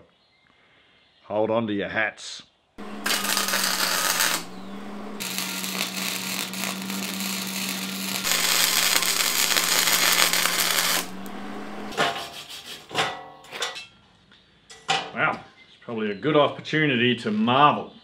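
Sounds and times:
low hum: 2.8s - 12.0s
welding arc crackling and hissing: 2.8s - 12.0s.

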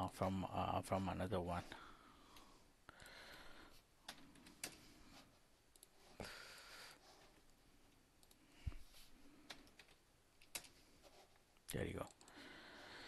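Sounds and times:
computer mouse clicks: 5.7s - 6.0s, 8.2s - 8.4s, 9.4s - 10.8s.

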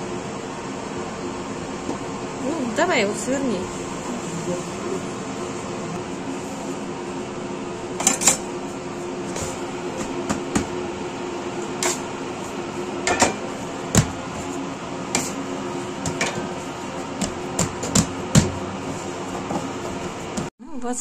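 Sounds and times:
bakery equipment hum: 0.0s - 21.0s
dough slapping and thudding: 13.0s - 15.4s, 16.0s - 20.5s.

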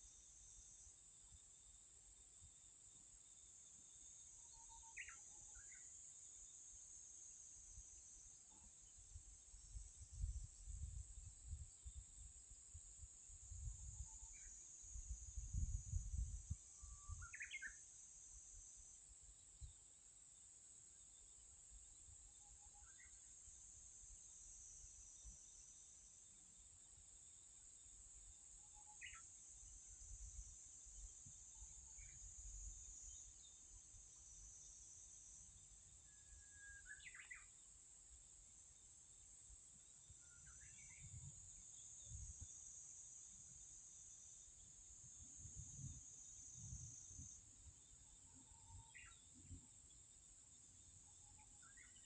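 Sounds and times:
bird chirps: 4.4s - 5.9s, 16.8s - 17.8s, 28.8s - 29.3s, 36.0s - 37.5s, 48.3s - 50.0s, 51.2s - 52.0s
wind rumble on microphone: 9.7s - 17.3s, 42.0s - 42.5s, 45.1s - 47.5s
high-pitched insect drone: 28.5s - 37.6s, 40.0s - 52.0s.

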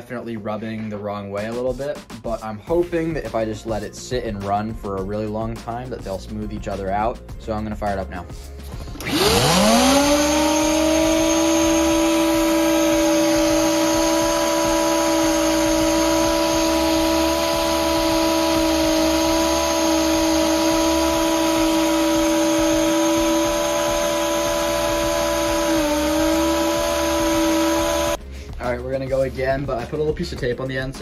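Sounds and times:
vacuum driving turbine whine: 9.0s - 28.2s.

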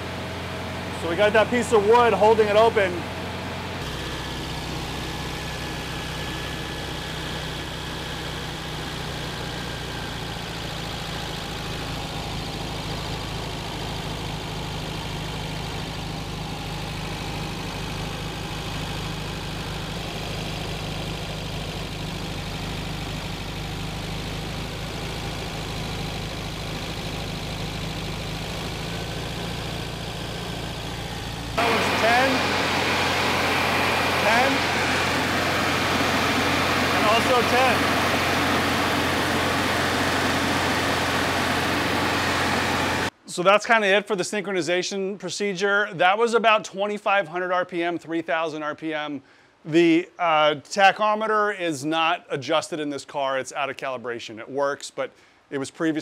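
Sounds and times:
car engine fast idle: 0.0s - 43.1s.

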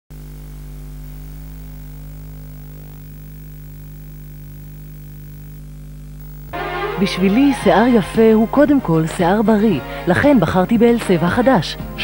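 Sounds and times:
low electrical hum: 0.2s - 6.6s.

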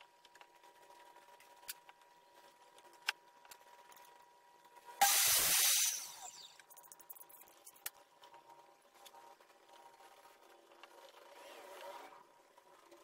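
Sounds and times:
hissing spray burst: 5.0s - 6.5s.

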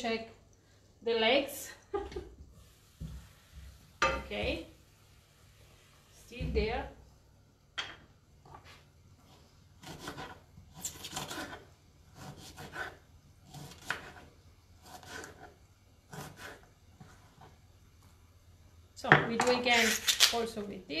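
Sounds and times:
knife cutting artichoke: 9.8s - 17.6s, 19.6s - 20.4s.

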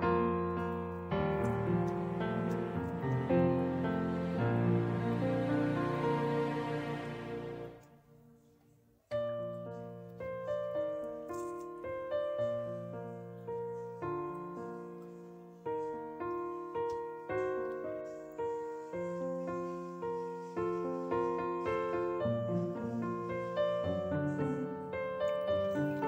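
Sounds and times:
slow piano melody: 0.0s - 26.0s.

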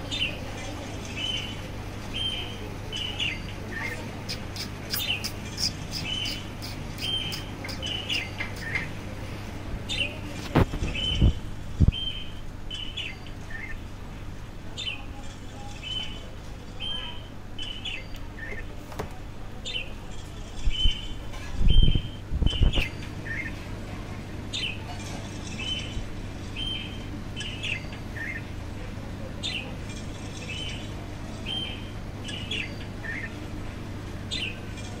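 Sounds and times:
steady low hum: 0.0s - 35.0s
budgerigars chirping: 1.2s - 8.9s, 30.3s - 33.4s.

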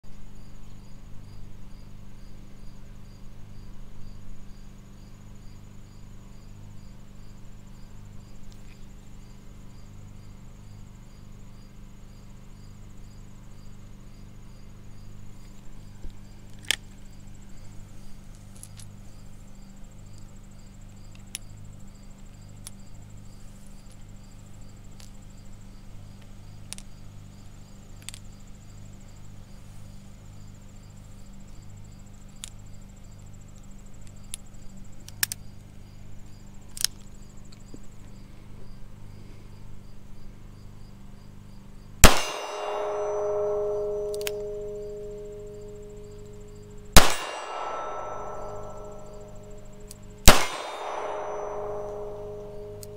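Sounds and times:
crickets chirping: 0.1s - 52.9s
loud revolver shot: 42.0s - 45.6s, 46.9s - 52.9s
revolver metallic clicks: 42.0s - 46.0s, 47.0s - 52.9s
steel target ringing: 42.0s - 52.9s.

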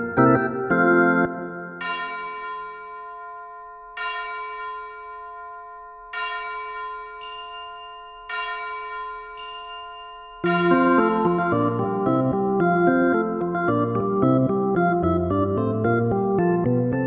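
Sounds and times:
busier melody: 0.0s - 2.0s, 10.4s - 17.0s
bell-like chime chords: 0.9s - 13.9s.

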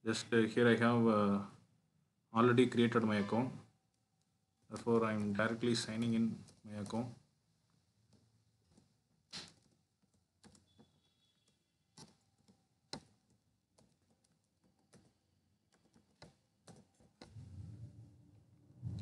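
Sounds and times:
keyboard keystrokes: 8.7s - 17.4s.

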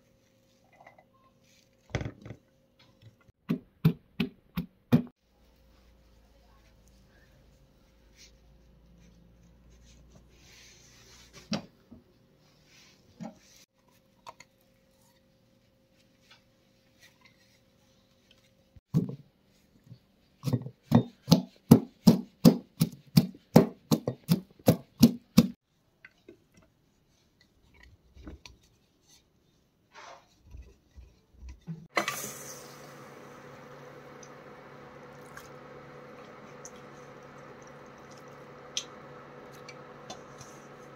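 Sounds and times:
pestle pounding in wooden mortar: 20.9s - 25.6s.

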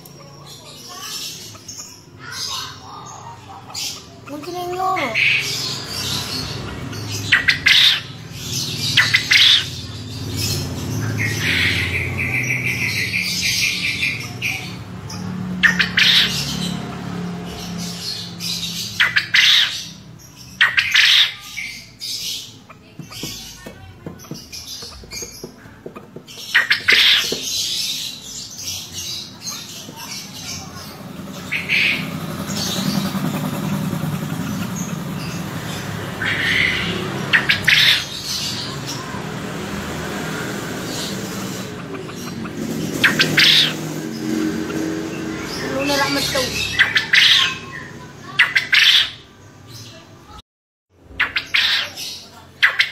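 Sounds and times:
quail chattering calls: 0.9s - 9.8s, 22.5s - 28.2s, 29.4s - 38.6s, 40.9s - 43.9s.

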